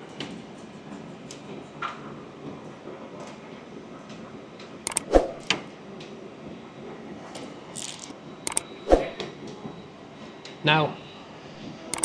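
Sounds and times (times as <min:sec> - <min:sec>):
steady background noise: 0:04.3 - 0:12.0
tools clicking: 0:04.9 - 0:05.6, 0:07.8 - 0:09.1.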